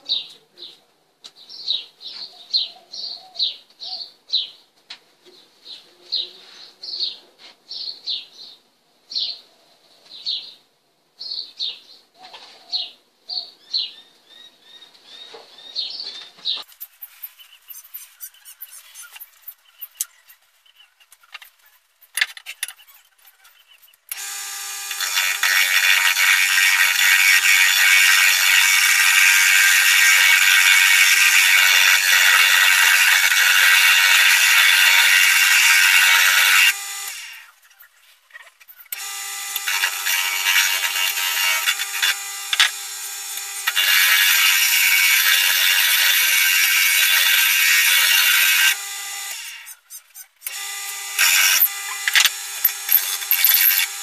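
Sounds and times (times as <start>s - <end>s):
sandpaper hissing on spinning wood: 16.8s - 20.0s, 47.0s - 50.4s
lathe motor humming: 24.1s - 37.4s, 39.0s - 49.8s, 50.5s - 54.0s.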